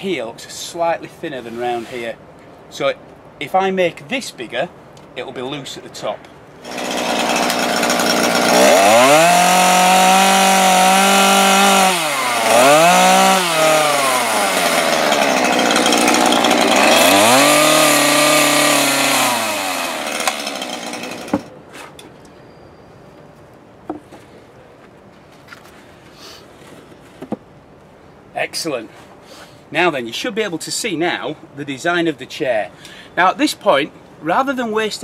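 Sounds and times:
chainsaw cutting into wood: 6.6s - 21.5s.

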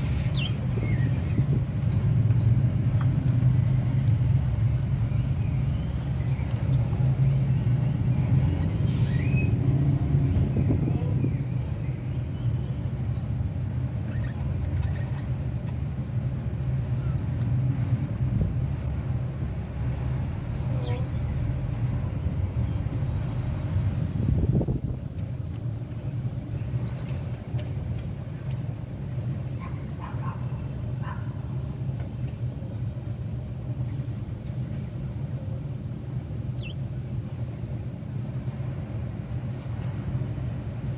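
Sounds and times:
budgerigar chirps: 36.5s - 36.8s.

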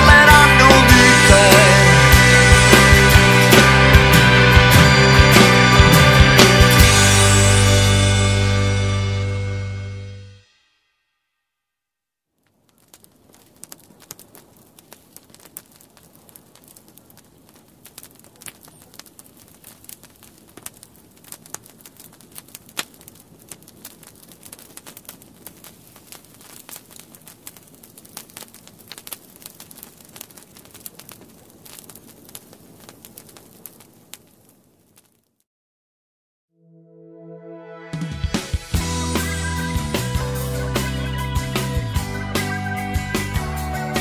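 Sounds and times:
irregular crackling and clicking: 12.4s - 35.4s
steady hiss: 12.5s - 35.0s.

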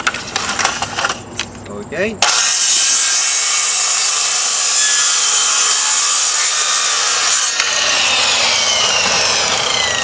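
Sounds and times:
circular saw cutting wood: 2.2s - 10.0s
saw blade winding down: 2.2s - 10.0s.

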